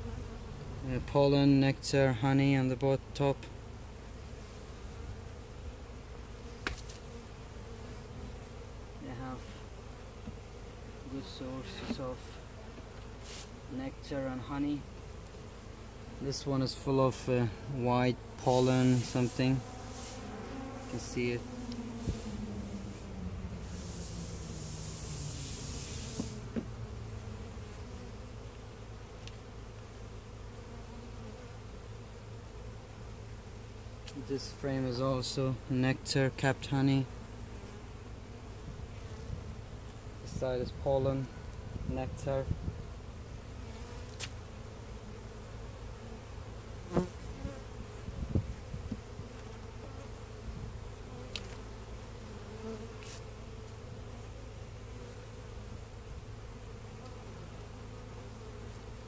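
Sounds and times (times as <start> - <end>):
honeybees buzzing: 0.0 - 59.0
short knocks on wooden hive: 6.6 - 7.0, 10.2 - 10.5, 26.1 - 26.8, 48.3 - 49.1
hive frames clicking and knocking: 6.6 - 7.1, 10.2 - 10.4, 51.2 - 51.6.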